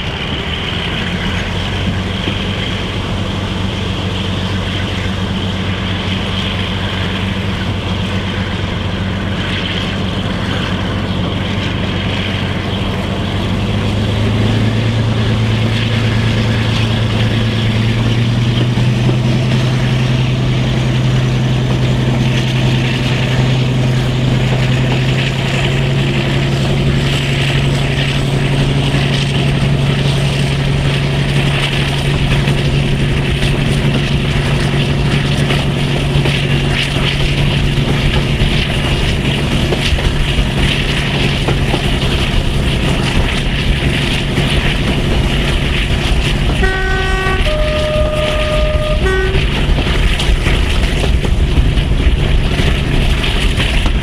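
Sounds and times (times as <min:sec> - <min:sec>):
diesel locomotive engine drone: 0:00.0 - 0:54.0
train wheel and wind rush: 0:00.0 - 0:54.0
two-tone locomotive horn: 0:46.4 - 0:50.2.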